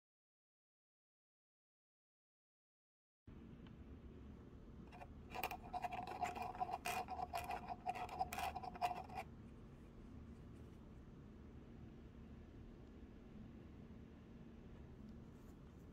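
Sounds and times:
plastic being handled: 4.9 - 9.2.

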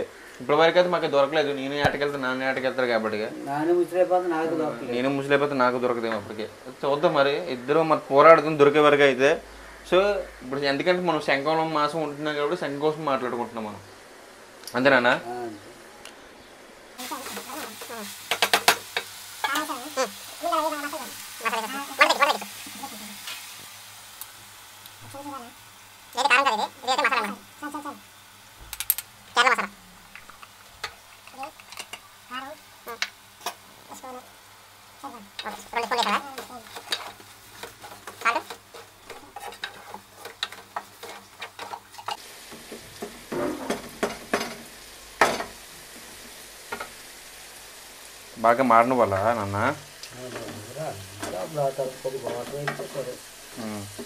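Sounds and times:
food frying in a pot: 0.0 - 15.9, 16.9 - 54.0
spatula scraping metal pot: 35.3 - 42.2.

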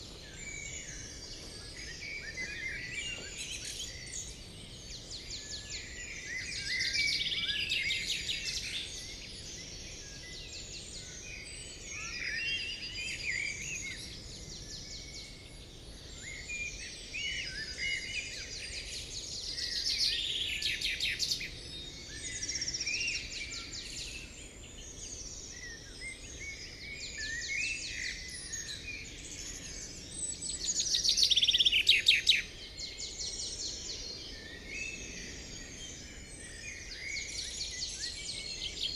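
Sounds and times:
songbirds singing: 0.0 - 38.9.

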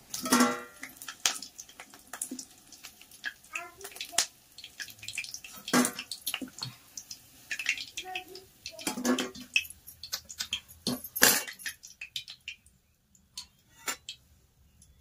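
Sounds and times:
frying oil crackling: 0.0 - 15.0
metal spoon clinking in pan: 8.8 - 12.4.

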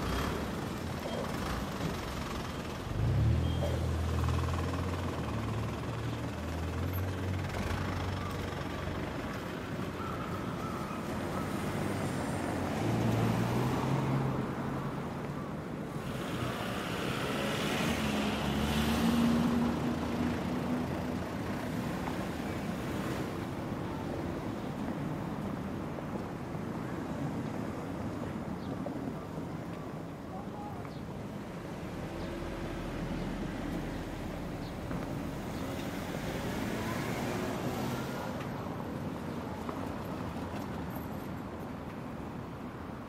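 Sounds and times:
city street traffic: 0.0 - 43.0
loud vehicle passing: 15.9 - 23.3.

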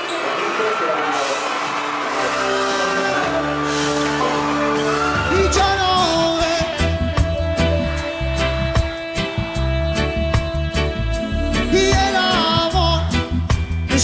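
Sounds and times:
keyboard chords: 1.2 - 14.0
drums and bass beat: 5.0 - 14.0
person singing: 5.1 - 14.0.

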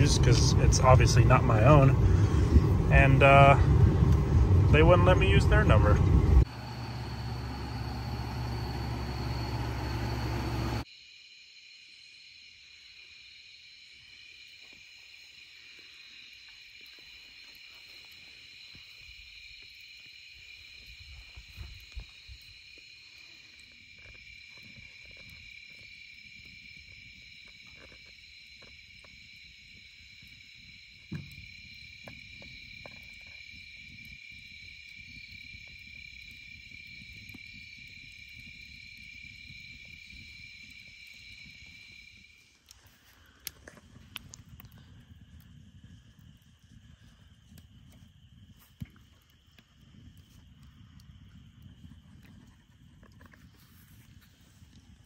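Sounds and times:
high-pitched whine: 0.0 - 10.9
wood fire crackling: 0.0 - 10.9, 14.4 - 55.0
night insects chirping: 0.0 - 55.0.

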